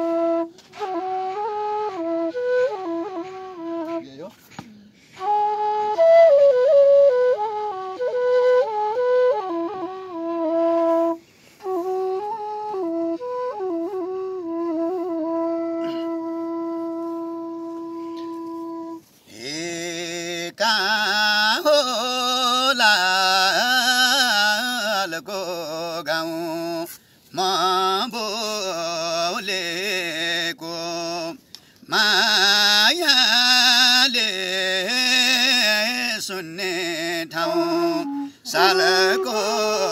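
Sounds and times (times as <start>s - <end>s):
bamboo flute melody: 0.0s - 25.0s, 25.7s - 39.9s
man singing high: 19.3s - 39.9s.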